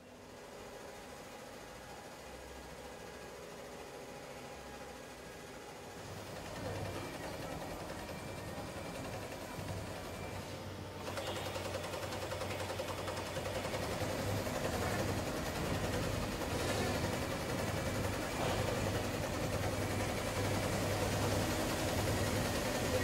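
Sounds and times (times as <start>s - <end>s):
sewing machine stitching: 11.0s - 23.0s.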